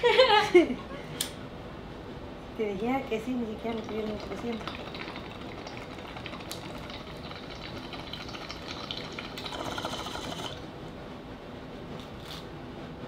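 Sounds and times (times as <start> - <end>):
water bubbling in a bong: 3.4 - 10.6.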